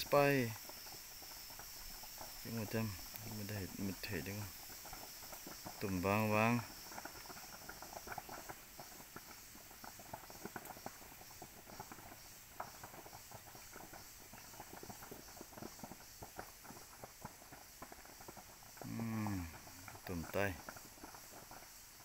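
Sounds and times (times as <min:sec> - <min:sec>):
distant fire crackling: 0:00.0 - 0:22.0.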